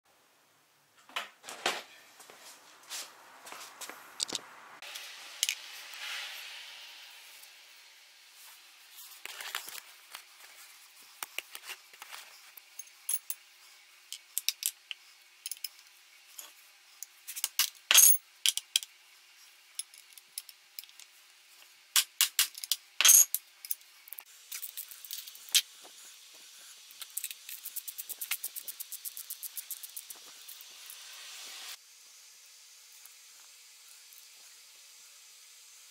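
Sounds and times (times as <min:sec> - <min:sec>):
metal tools clinking on engine: 0:22.6 - 0:23.8.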